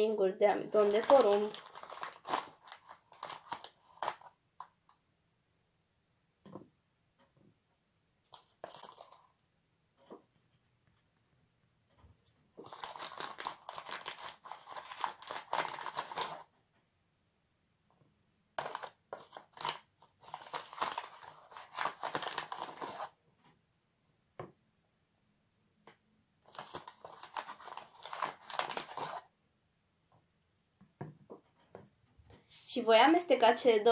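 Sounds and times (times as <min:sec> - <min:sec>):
spoon scraping in packet: 0:08.4 - 0:09.2, 0:12.6 - 0:16.4, 0:18.6 - 0:23.2, 0:26.5 - 0:29.2.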